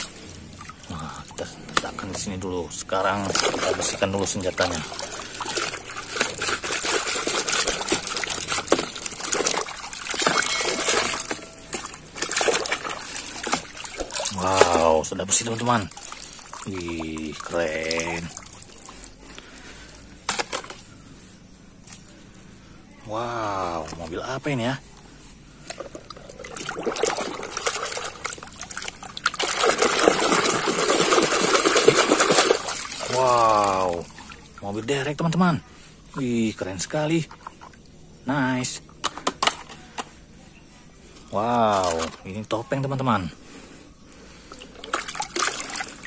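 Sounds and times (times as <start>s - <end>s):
water splashing in a basin: 0.0s - 20.8s, 25.6s - 40.0s, 41.3s - 43.0s, 44.2s - 46.0s
toy being scrubbed in water: 3.1s - 14.8s.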